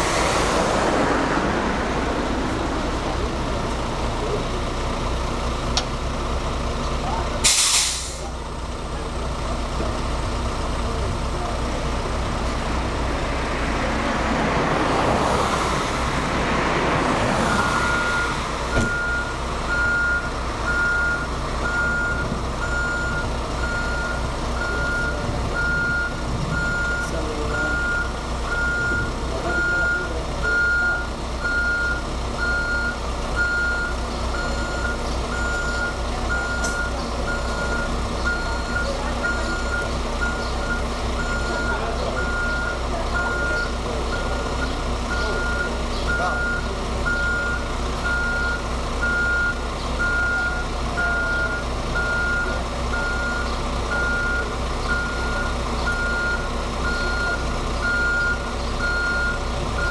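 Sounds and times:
diesel engine humming: 0.0s - 59.9s
backup alarm beeping: 17.8s - 59.9s.

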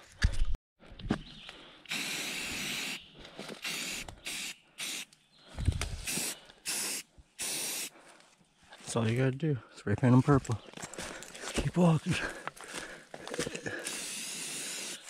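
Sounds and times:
spray paint can hissing: 1.9s - 3.0s, 3.6s - 5.1s, 6.0s - 7.9s, 13.9s - 15.0s.

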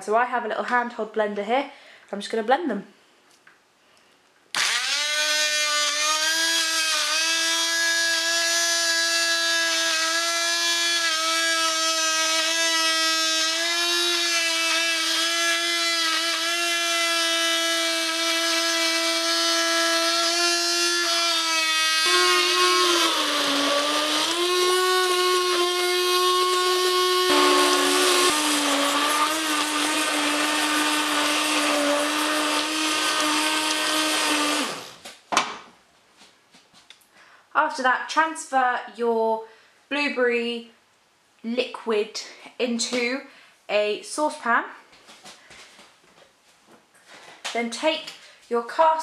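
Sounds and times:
immersion blender motor whine: 4.6s - 35.0s.

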